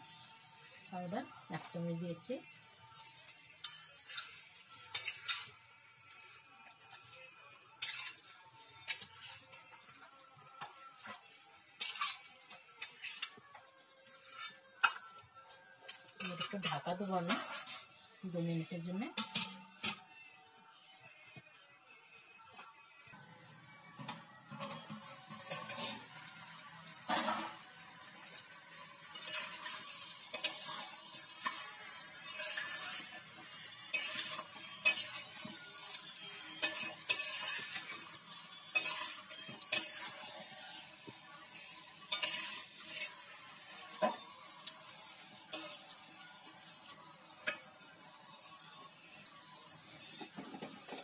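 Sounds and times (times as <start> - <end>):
food sizzling in a pan: 0.0 - 20.8, 22.4 - 51.0
spatula scraping a pan: 2.7 - 7.2, 7.8 - 15.2, 15.9 - 18.0, 24.0 - 48.5, 49.3 - 51.0.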